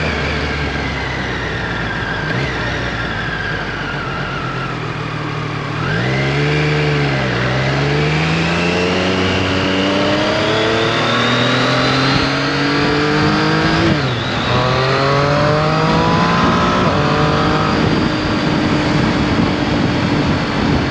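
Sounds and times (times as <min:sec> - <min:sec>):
motorcycle engine accelerating: 0:00.0 - 0:20.9
wind rushing: 0:11.9 - 0:20.9.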